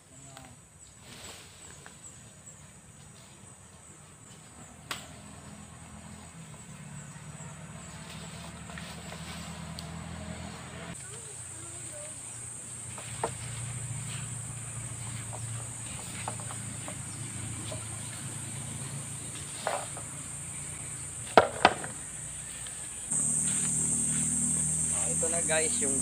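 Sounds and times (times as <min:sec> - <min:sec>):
insects droning: 0:00.0 - 0:26.0
bamboo pole knocking: 0:21.3 - 0:22.0.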